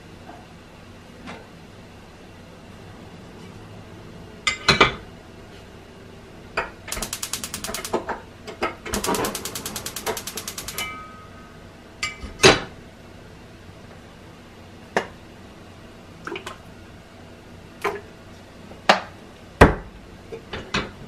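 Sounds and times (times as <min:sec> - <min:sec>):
gas stove igniter clicking: 0:06.9 - 0:08.1, 0:09.0 - 0:11.0.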